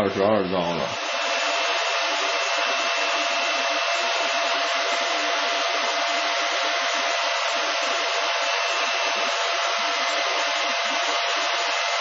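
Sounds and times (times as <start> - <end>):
cooling fans running: 0.0 - 12.0.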